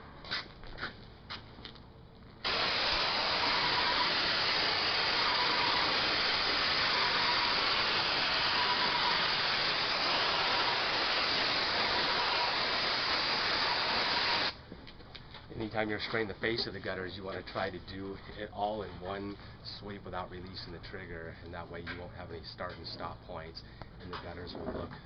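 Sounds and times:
paint sprayer hissing: 2.4s - 14.6s.

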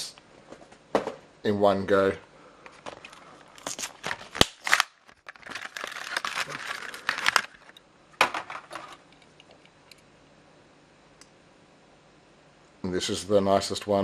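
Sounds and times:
plastic blister pack crackling: 3.6s - 7.8s.

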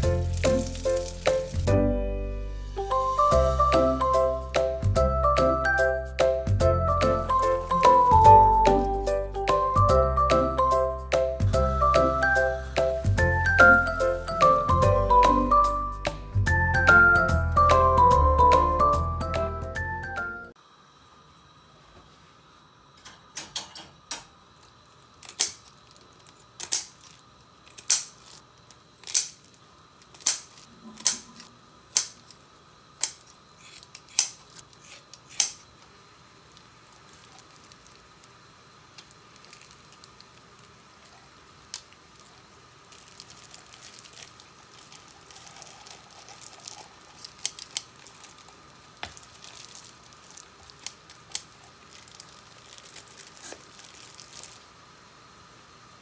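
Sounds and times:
wet squishing and crinkling: 0.0s - 1.7s, 24.8s - 31.6s, 36.4s - 54.8s.

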